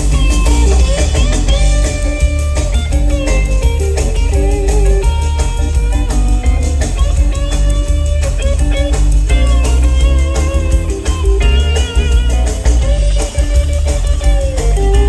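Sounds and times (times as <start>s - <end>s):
bass and drum groove: 0.0s - 15.0s
electric guitar melody: 0.0s - 15.0s.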